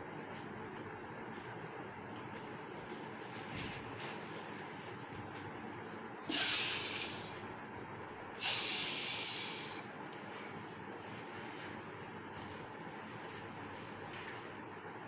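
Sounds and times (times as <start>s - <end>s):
person hissing through teeth: 6.3s - 7.4s, 8.4s - 9.8s.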